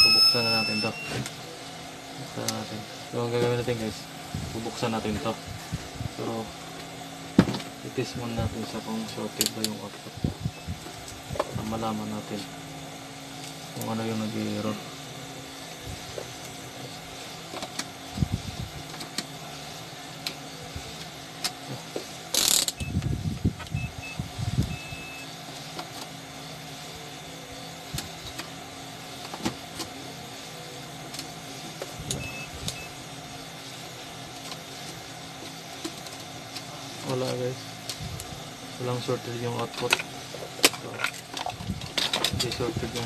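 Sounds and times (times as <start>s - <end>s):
faint short high beeps: 0.0s - 1.2s
steady low hum: 0.0s - 43.0s.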